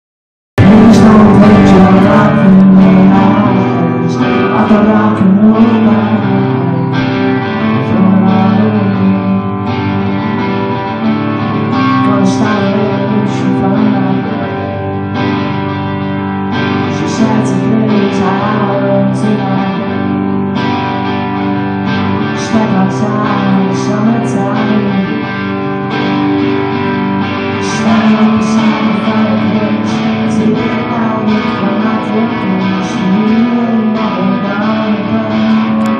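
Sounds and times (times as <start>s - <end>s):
live rock band playing: 0.6s - 35.9s.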